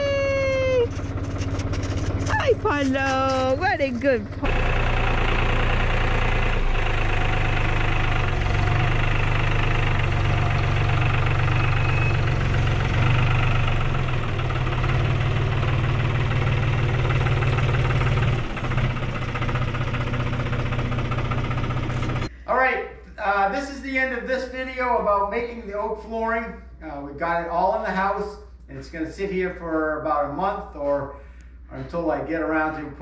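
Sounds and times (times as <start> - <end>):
tractor engine running: 0.0 - 22.3.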